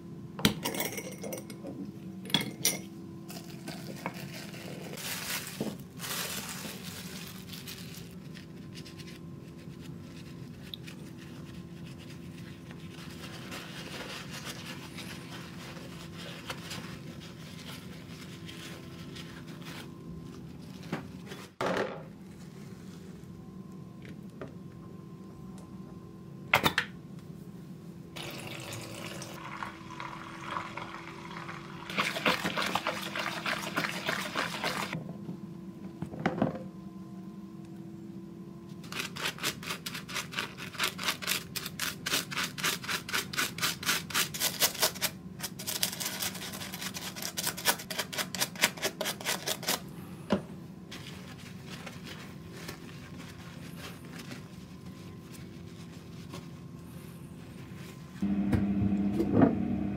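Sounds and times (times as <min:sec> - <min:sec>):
water pouring into plastic tub: 0:28.2 - 0:35.0.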